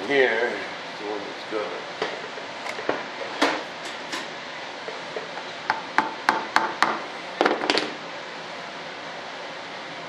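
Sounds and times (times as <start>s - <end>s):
knocks on workbench: 5.7s - 8.0s.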